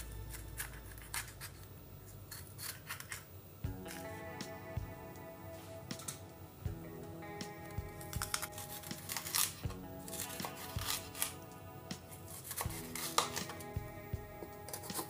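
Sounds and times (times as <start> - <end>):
background music: 0.0 - 1.5, 3.6 - 15.0
knife slicing pepper: 8.0 - 11.4, 12.3 - 13.8, 14.6 - 15.0.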